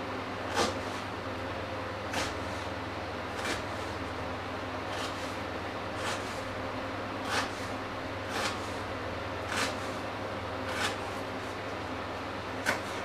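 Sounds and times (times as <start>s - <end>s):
knife chopping on wooden board: 0.5s - 1.0s, 2.1s - 2.5s, 3.4s - 3.8s, 4.9s - 5.3s, 6.0s - 6.4s, 7.2s - 7.7s, 8.3s - 8.8s, 9.5s - 10.0s, 10.7s - 11.2s, 12.6s - 13.0s.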